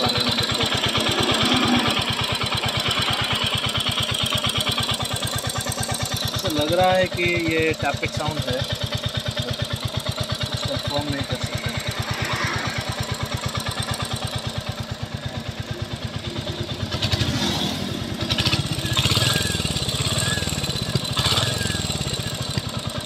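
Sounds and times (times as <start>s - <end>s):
motorcycle engine idling: 0.0s - 23.0s.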